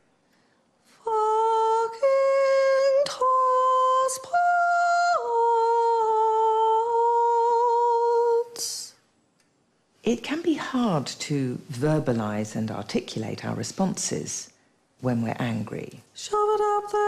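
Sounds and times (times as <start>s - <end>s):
woman singing chant-like line: 1.0s - 9.0s, 16.2s - 17.0s.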